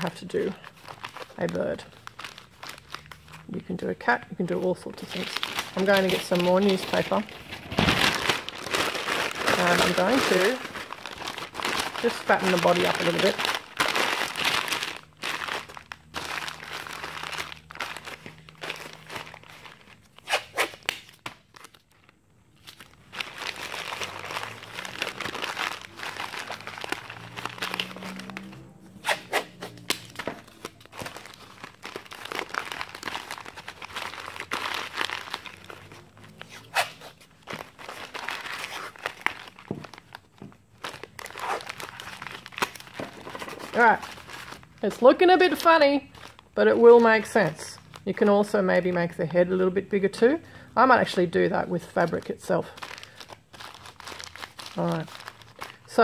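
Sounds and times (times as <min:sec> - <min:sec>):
newspaper crumpling: 0:00.0 - 0:03.8, 0:04.4 - 0:48.9, 0:51.7 - 0:56.0
masking tape tearing: 0:05.2 - 0:21.8, 0:22.6 - 0:40.1, 0:40.8 - 0:44.8.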